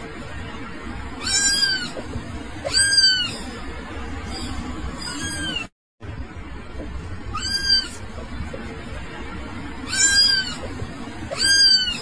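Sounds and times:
kitten meowing: 0:01.2 - 0:02.0, 0:02.6 - 0:03.5, 0:04.3 - 0:05.7, 0:07.3 - 0:08.0, 0:09.8 - 0:10.7, 0:11.3 - 0:12.0.

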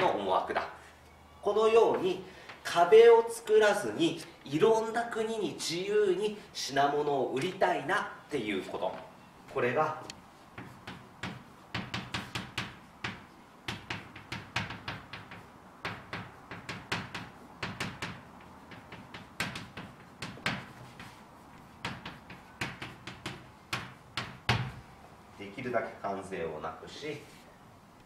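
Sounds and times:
chalk writing on a blackboard: 0:10.6 - 0:24.6.

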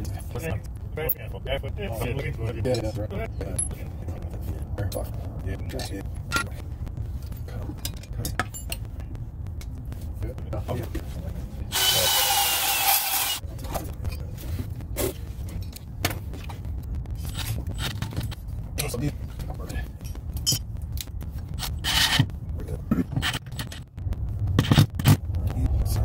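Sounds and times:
steady low rumble: 0:00.0 - 0:26.0
cordless drill motor whining: 0:11.7 - 0:13.4.

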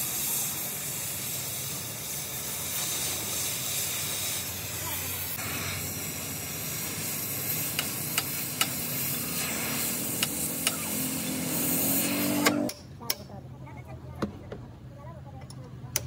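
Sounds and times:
cutting torch hissing: 0:00.0 - 0:12.7
molten metal popping: 0:05.8 - 0:11.0.

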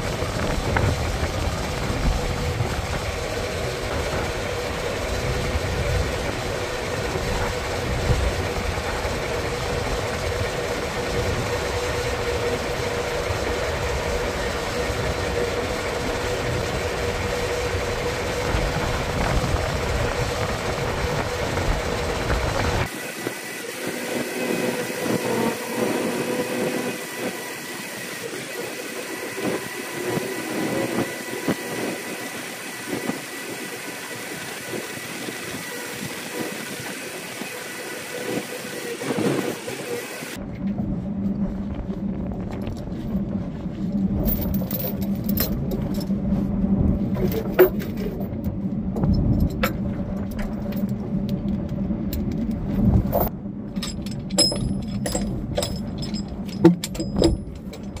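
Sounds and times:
diesel truck engine running: 0:00.0 - 0:22.9, 0:39.0 - 0:58.0
metal clanks: 0:53.2 - 0:58.0.

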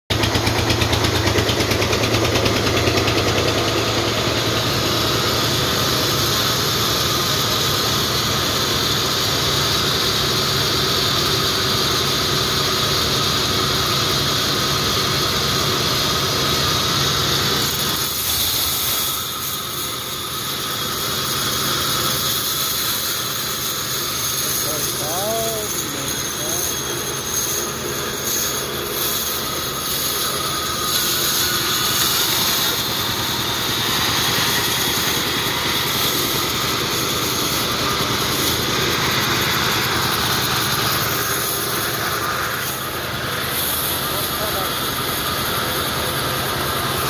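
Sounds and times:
band saw cutting log: 0:00.1 - 0:47.0.

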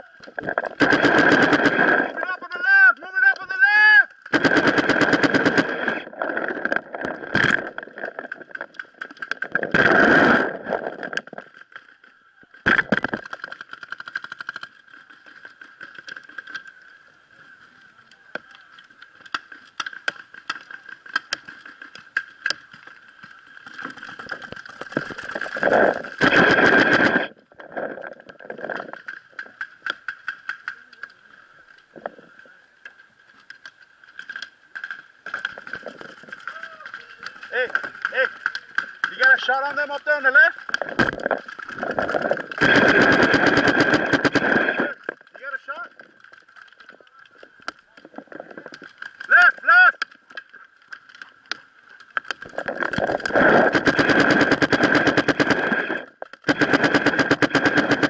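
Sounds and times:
paintball markers firing: 0:00.8 - 0:02.2, 0:04.3 - 0:06.0, 0:42.5 - 0:44.8, 0:53.0 - 0:58.0.

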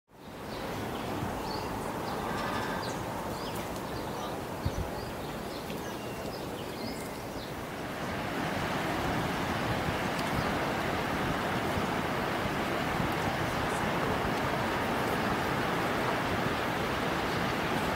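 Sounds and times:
small birds chirping: 0:00.2 - 0:08.3, 0:13.0 - 0:17.9
breaking surf: 0:07.6 - 0:17.9.

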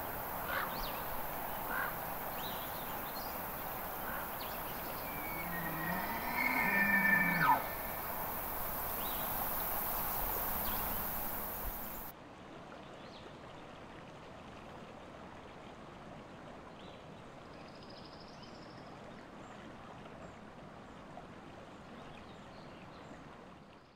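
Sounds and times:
rushing outdoor ambience: 0:00.0 - 0:12.1
faint high chirps: 0:03.3 - 0:12.1.

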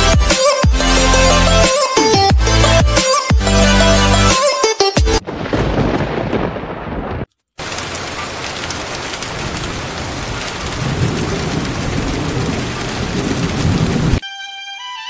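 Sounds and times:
low thunder rumbling: 0:05.2 - 0:14.2
steady rain: 0:05.2 - 0:14.2.

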